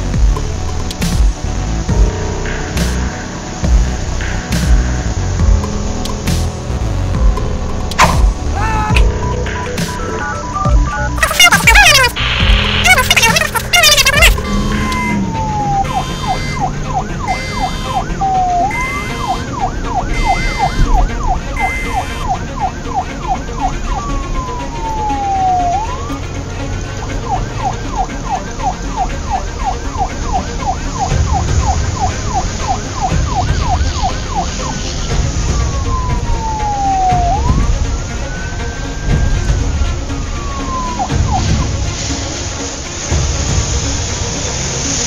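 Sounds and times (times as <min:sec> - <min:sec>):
police siren wailing and warbling: 0:08.6 - 0:42.2
high beeping: 0:10.0 - 0:22.4.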